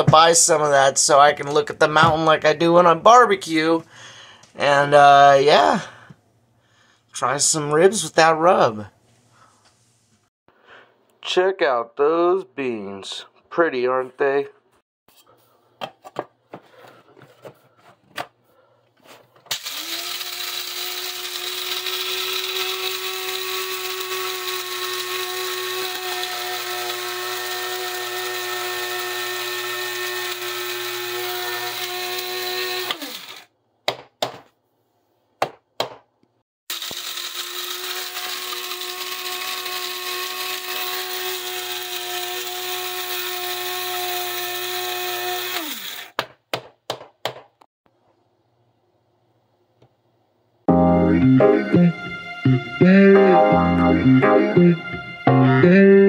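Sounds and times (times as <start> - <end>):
electric coffee grinder grinding beans: 19.5 - 33.5, 36.7 - 46.2.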